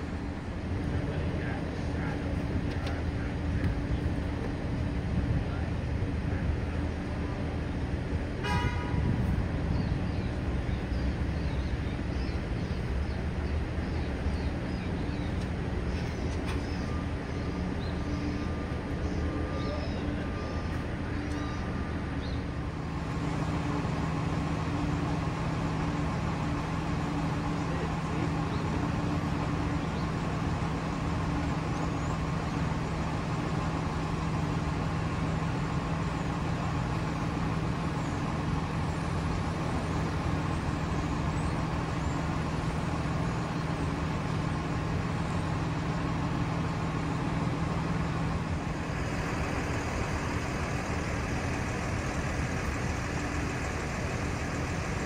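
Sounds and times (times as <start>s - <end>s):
traffic rumble: 0.0s - 55.0s
car horn toot: 8.4s - 9.2s.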